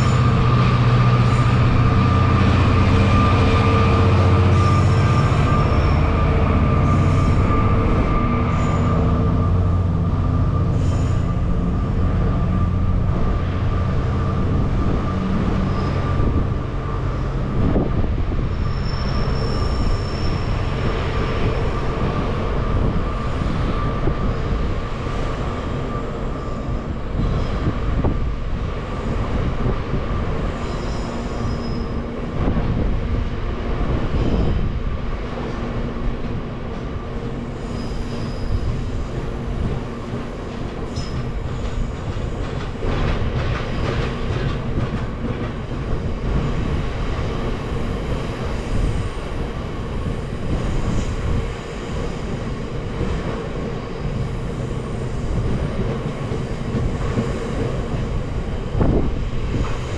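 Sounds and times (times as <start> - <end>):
high wheel squeals: 0.0 - 13.4, 14.0 - 27.7, 30.2 - 32.2, 37.4 - 39.2, 40.8 - 42.4
freight train wheels rumbling: 0.0 - 59.9.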